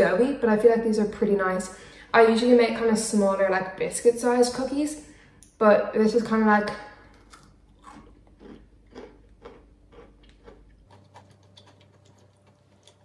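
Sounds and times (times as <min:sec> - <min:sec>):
person chewing cookie: 0:07.0 - 0:13.0.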